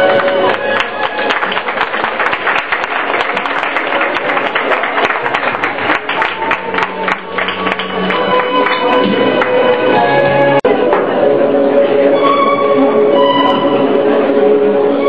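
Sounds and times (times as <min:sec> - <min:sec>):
audience applause: 0:00.0 - 0:09.8
music playing: 0:00.0 - 0:15.0.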